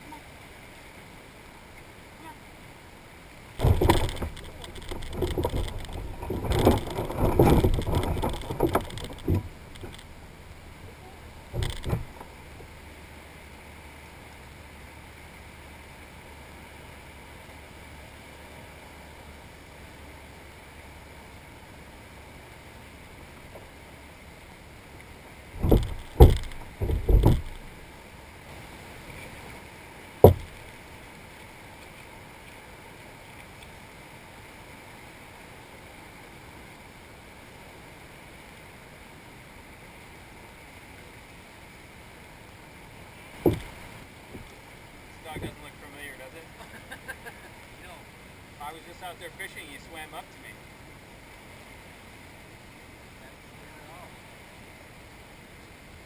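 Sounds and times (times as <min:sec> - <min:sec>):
knocks on kayak gear: 0:03.6 - 0:10.0, 0:11.5 - 0:12.2, 0:25.6 - 0:27.7, 0:30.2 - 0:30.6, 0:43.4 - 0:43.8.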